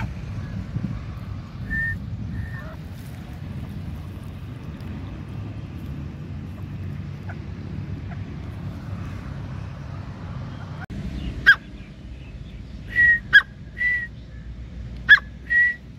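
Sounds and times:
wind rumble on microphone: 0.0 - 12.9
bird whistled call notes: 1.6 - 2.8, 12.8 - 14.4, 15.1 - 15.9.

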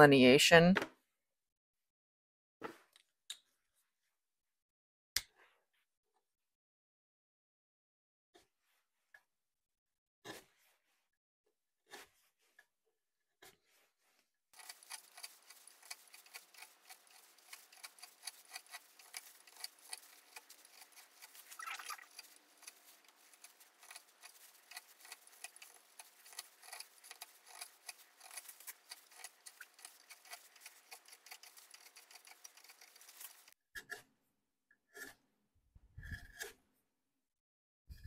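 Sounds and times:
carving tool scraping wood: 13.4 - 34.1, 34.9 - 35.2, 36.0 - 36.6.

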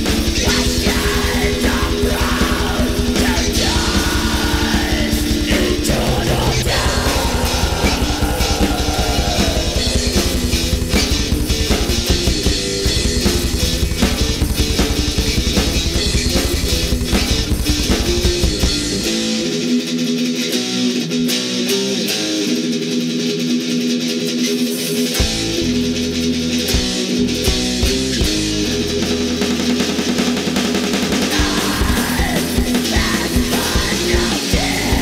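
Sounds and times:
bass and drums: 0.0 - 35.0
melodic guitar riff: 5.2 - 30.0.

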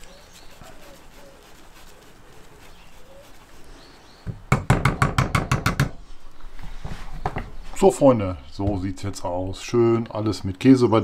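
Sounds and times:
grater strokes on glass dish: 0.0 - 4.0.

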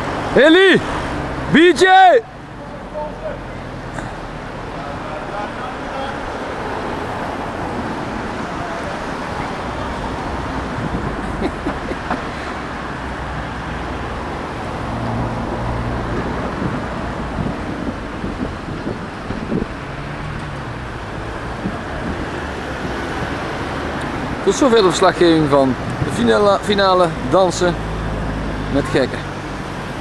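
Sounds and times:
wind rumbling on microphone: 6.1 - 24.5.

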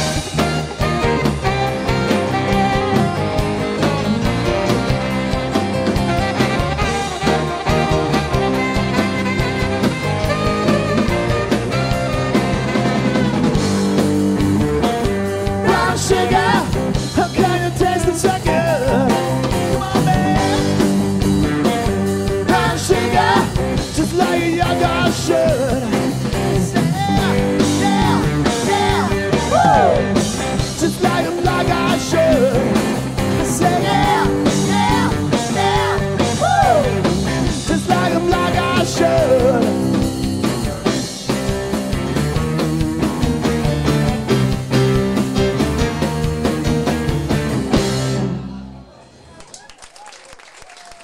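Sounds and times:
saxophone: 0.0 - 14.2
live rock band playing: 0.0 - 49.0
lead vocal singing: 15.5 - 21.0, 22.3 - 40.1.

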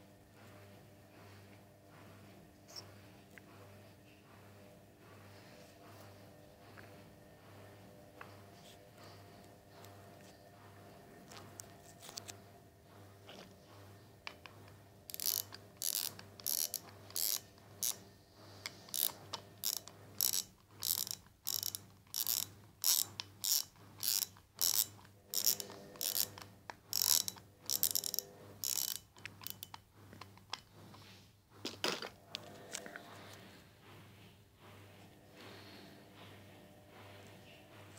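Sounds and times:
metal parts ratcheting scrapes: 15.1 - 18.0, 18.6 - 31.0.

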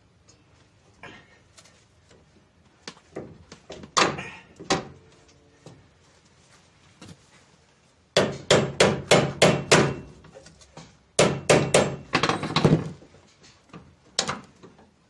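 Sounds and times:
hammer striking metal: 8.2 - 10.2, 11.2 - 12.4.

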